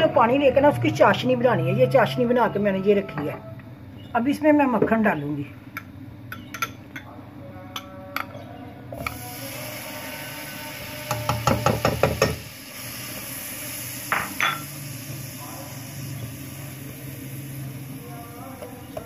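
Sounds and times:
spoon clinking against glass bowl: 0:14.2 - 0:14.6.

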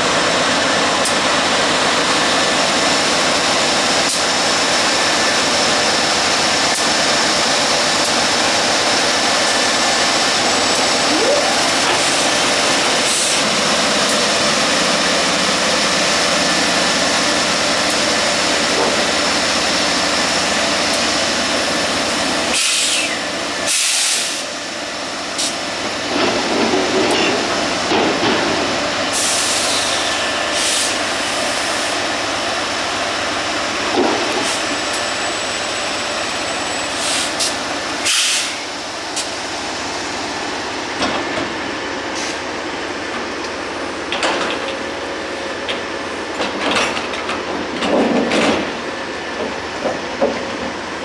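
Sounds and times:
train rumble and wheel noise: 0:00.0 - 0:51.0
sharp clanks and knocks: 0:46.4 - 0:48.8.

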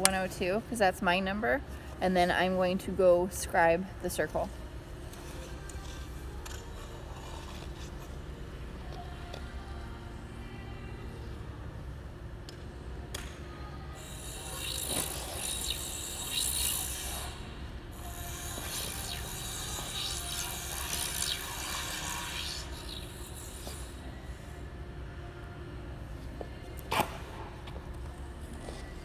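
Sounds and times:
metal point scraping ice: 0:05.2 - 0:08.1.

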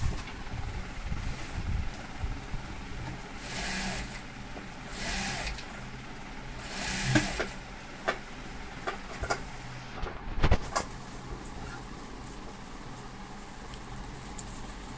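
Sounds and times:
motor hum: 0:00.0 - 0:14.9
sewing machine stitching: 0:03.4 - 0:04.2, 0:04.9 - 0:05.7, 0:06.5 - 0:07.6.

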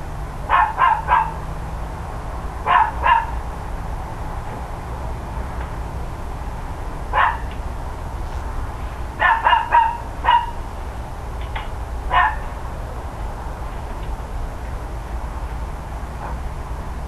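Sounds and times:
steady low rumble: 0:00.0 - 0:17.0
dog barking: 0:00.5 - 0:01.4, 0:02.6 - 0:03.4, 0:07.1 - 0:07.5, 0:09.2 - 0:10.6, 0:12.1 - 0:12.5.

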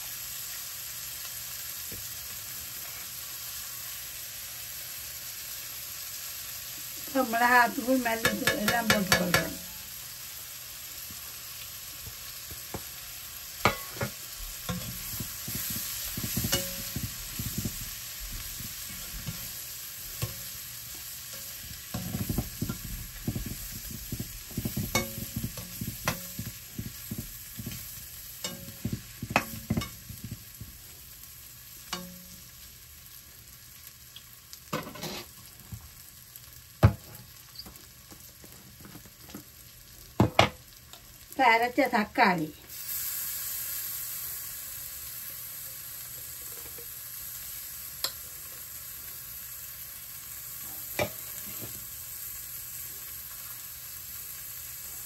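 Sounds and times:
spices sizzling in oil: 0:00.0 - 0:55.0
spoon stirring and scraping pan: 0:07.1 - 0:10.0, 0:12.0 - 0:32.6, 0:34.7 - 0:35.9, 0:46.0 - 0:47.0, 0:50.6 - 0:51.9
spoon knocking on pan: 0:08.2 - 0:09.8, 0:13.6 - 0:19.6, 0:20.2 - 0:20.6, 0:21.3 - 0:30.7, 0:31.9 - 0:32.4, 0:36.8 - 0:37.2.

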